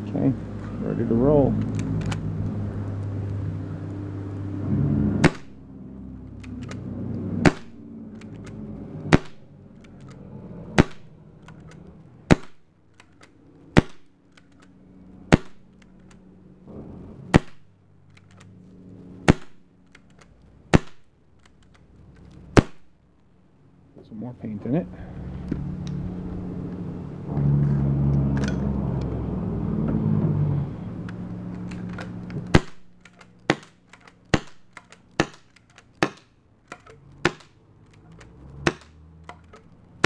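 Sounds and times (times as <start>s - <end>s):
low hum: 0.0s - 40.0s
paintball pistol shots: 5.2s - 5.7s, 7.4s - 9.5s, 10.7s - 14.2s, 15.2s - 15.8s, 17.3s - 17.7s, 19.2s - 21.1s, 22.5s - 22.9s, 31.6s - 37.6s, 38.2s - 39.6s.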